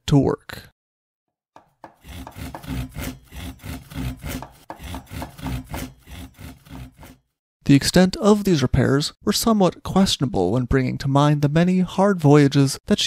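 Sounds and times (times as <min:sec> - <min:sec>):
hand tool scraping through wood: 0:01.6 - 0:07.3.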